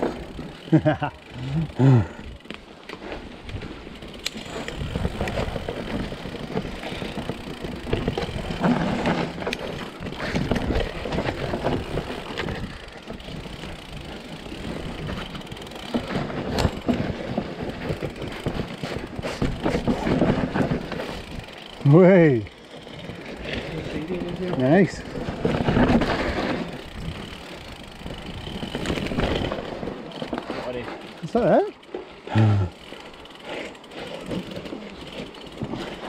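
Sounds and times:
bike rattling over roots: 0:00.0 - 0:36.0
bike tyre rumble on dirt: 0:00.0 - 0:36.0.

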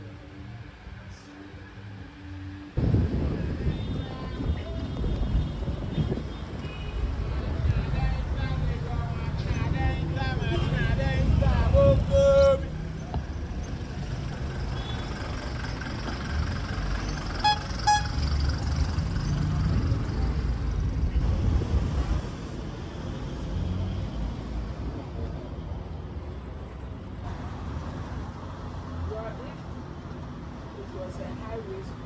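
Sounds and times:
engine and road rumble: 0:00.0 - 0:32.0
car horn tooting: 0:17.4 - 0:18.4.

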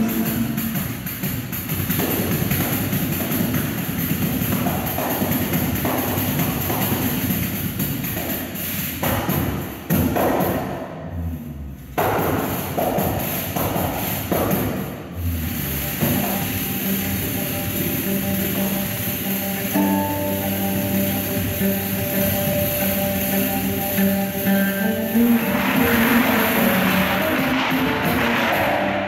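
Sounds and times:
deep drum thumps: 0:09.0 - 0:16.5.

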